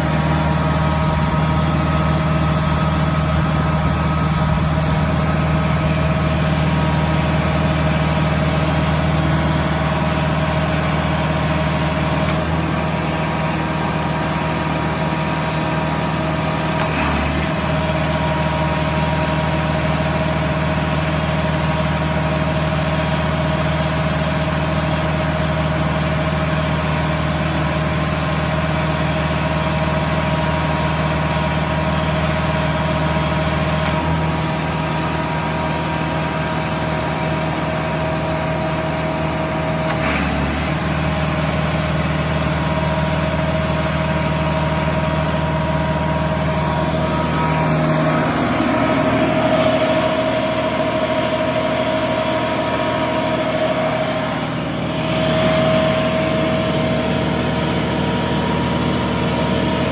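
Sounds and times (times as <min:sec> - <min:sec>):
diesel generator drone: 0:00.0 - 0:59.9.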